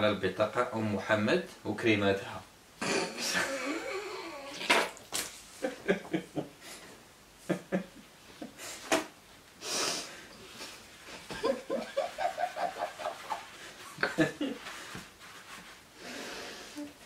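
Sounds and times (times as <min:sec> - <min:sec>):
stifled laughter: 0:11.2 - 0:14.7.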